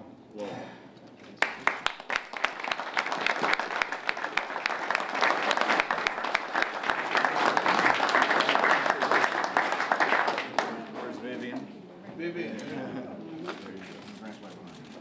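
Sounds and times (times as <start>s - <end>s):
people applauding: 1.4s - 11.2s.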